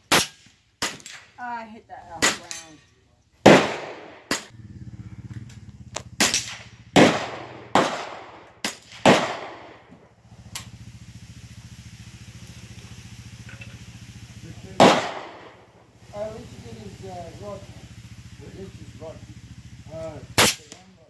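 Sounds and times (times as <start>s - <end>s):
steady low hum: 1.2s - 21.0s
gunshots echoing: 3.4s - 4.5s, 6.2s - 10.1s, 14.6s - 15.8s, 20.3s - 20.8s.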